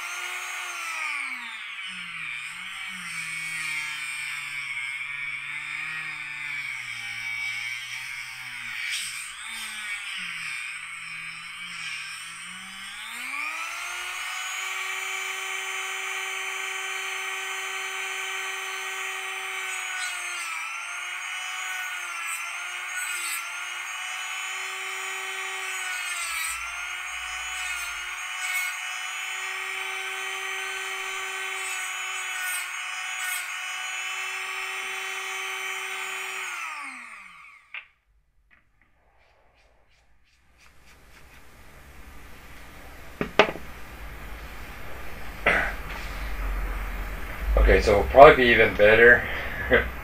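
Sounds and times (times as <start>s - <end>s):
rotary tool cutting plastic: 0.0s - 38.0s.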